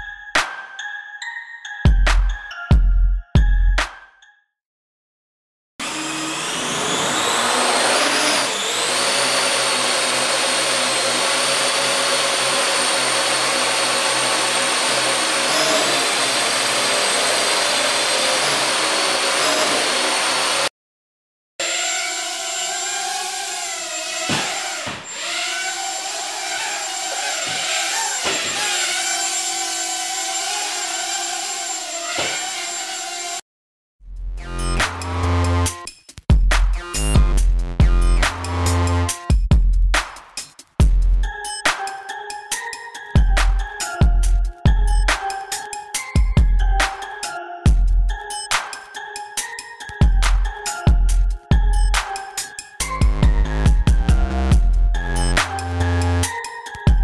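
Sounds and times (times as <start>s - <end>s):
quadcopter motor whine: 5.8s - 20.7s, 21.6s - 33.4s.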